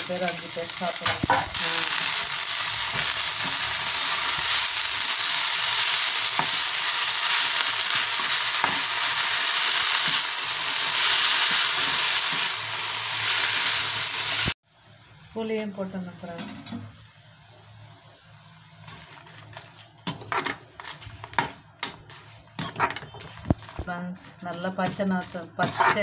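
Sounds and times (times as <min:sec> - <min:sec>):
frying hiss: 0:00.0 - 0:16.1.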